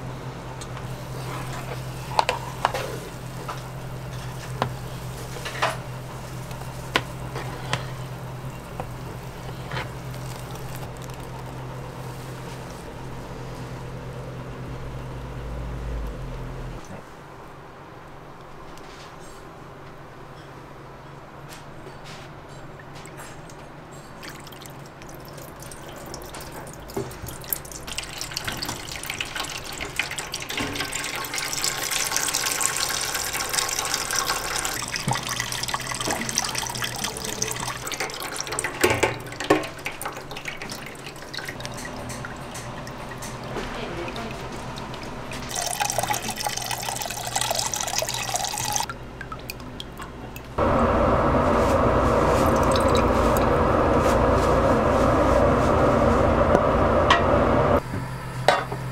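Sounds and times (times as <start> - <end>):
liquid trickling and dripping into tray: 24.2 - 50.6.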